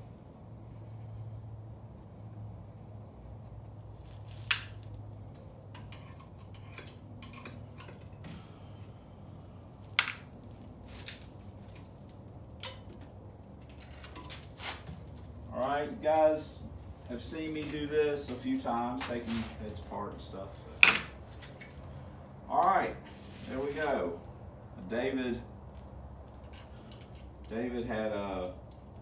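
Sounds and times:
steady low hum: 0.0 - 29.0
metal clicks and clinks: 5.7 - 8.2, 26.3 - 27.6.

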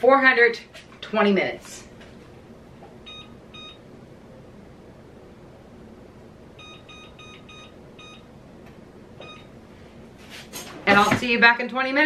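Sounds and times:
oven keypad beeps: 3.0 - 3.9, 6.6 - 8.3, 9.2 - 9.6.

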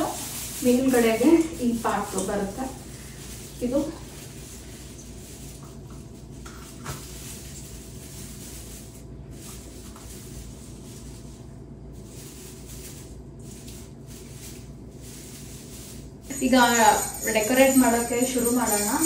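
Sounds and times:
plastic branches rustling: 0.0 - 19.0.

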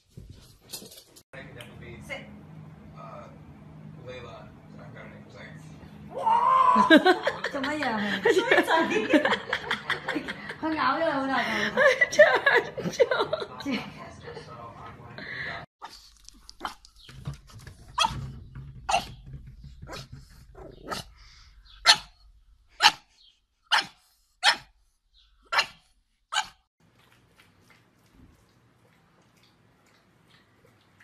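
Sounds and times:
dog barking: 21.8 - 22.2, 22.8 - 23.1, 23.7 - 24.7, 25.5 - 26.6.

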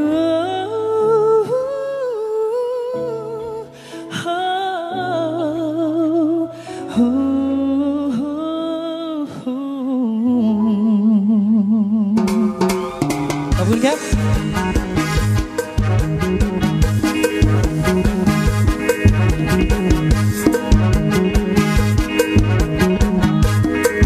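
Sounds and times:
drums: 12.0 - 24.0
live band music: 12.0 - 24.0.

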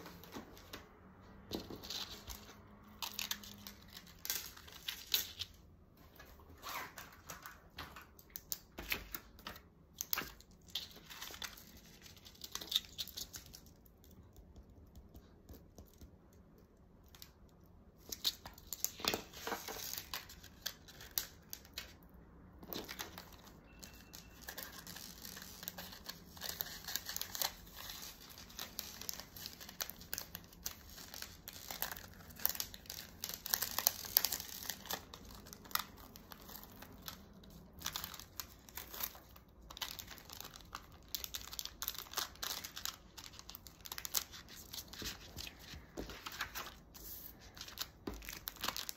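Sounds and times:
plastic bag crinkling: 22.7 - 48.9.

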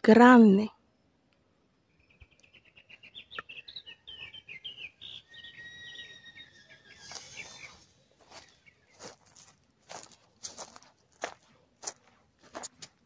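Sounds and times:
bird singing: 1.7 - 9.4.

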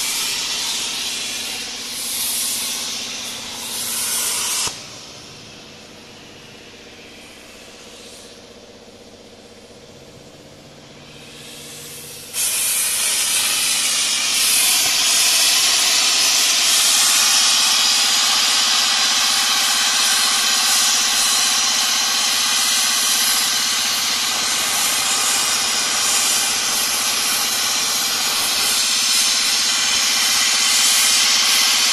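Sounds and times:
plasma torch arc hissing: 0.0 - 5.5, 11.0 - 31.9.

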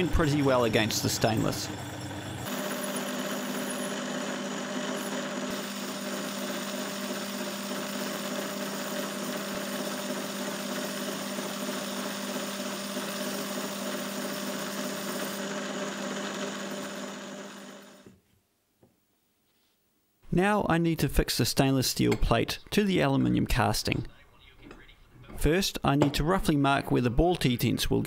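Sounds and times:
lathe boring metal: 0.0 - 18.0.

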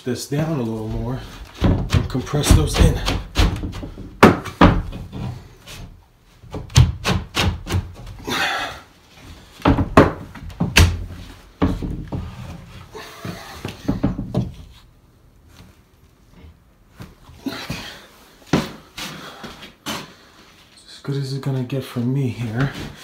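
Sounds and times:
board knocking and thumping: 0.9 - 8.2, 9.6 - 12.6, 13.3 - 14.8.

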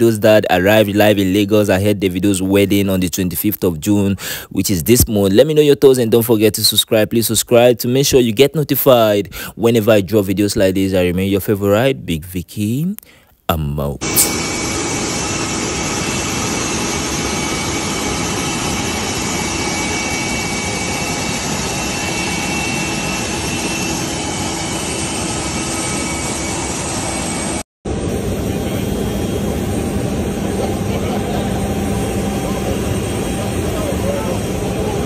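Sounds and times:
jet engine rush and whine: 14.0 - 35.0.

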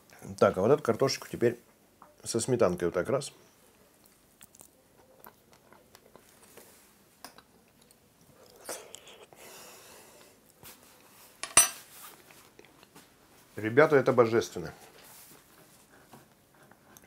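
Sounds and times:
person chewing: 4.0 - 9.4.

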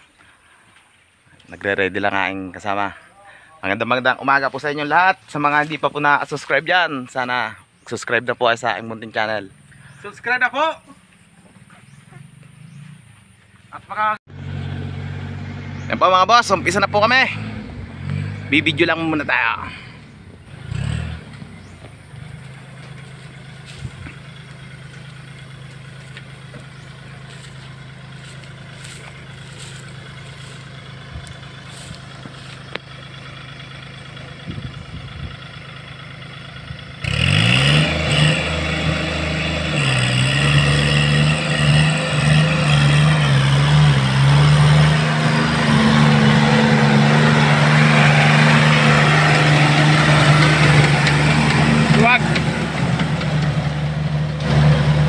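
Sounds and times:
tractor diesel engine running: 11.0 - 55.0.

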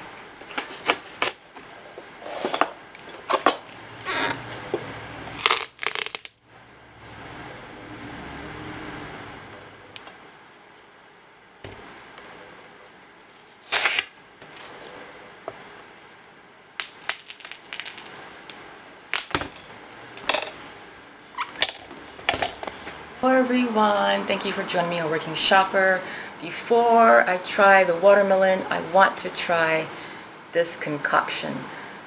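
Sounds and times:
watermelon rind crackling: 5.3 - 6.4, 13.6 - 14.2, 16.8 - 19.6.

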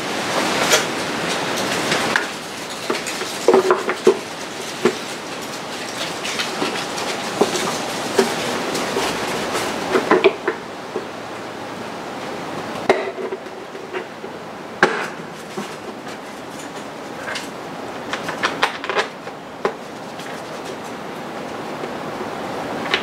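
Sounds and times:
plastic cover scraping: 0.3 - 11.1, 14.9 - 21.0.

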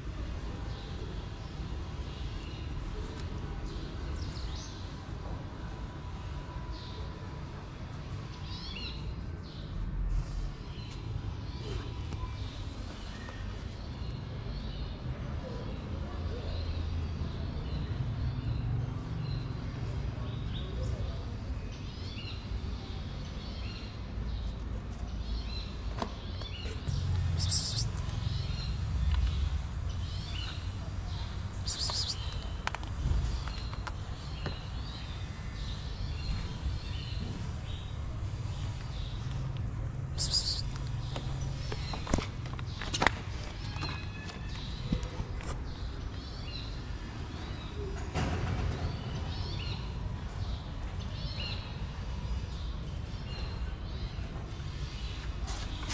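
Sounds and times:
small birds chirping: 8.0 - 48.0
steady low rumble: 26.8 - 34.1.

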